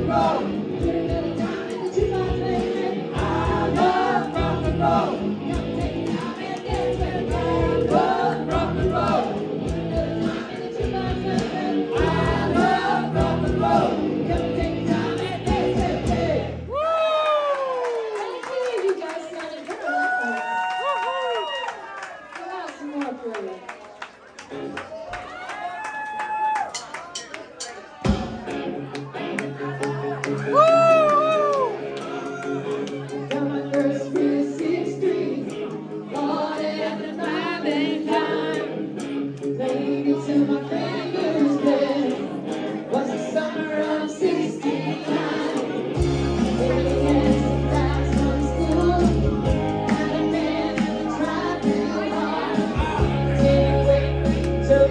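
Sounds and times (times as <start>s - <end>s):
live rock band playing: 0.0s - 16.6s, 27.1s - 30.4s, 44.8s - 54.9s
woman singing lead: 0.0s - 16.8s, 33.3s - 38.9s, 39.6s - 54.9s
steady drumbeat: 0.8s - 16.5s.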